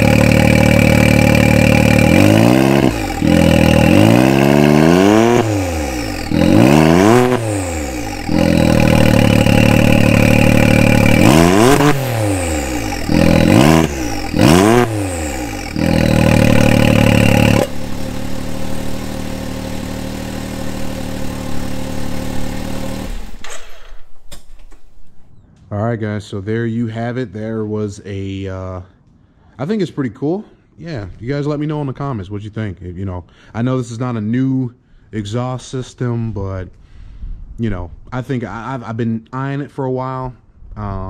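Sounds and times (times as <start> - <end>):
engine revving and idling: 0.0 - 24.0.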